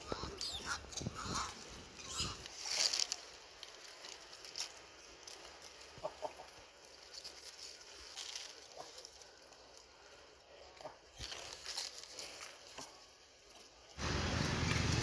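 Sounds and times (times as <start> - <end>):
animal clucking: 0.0 - 2.5, 6.0 - 6.6.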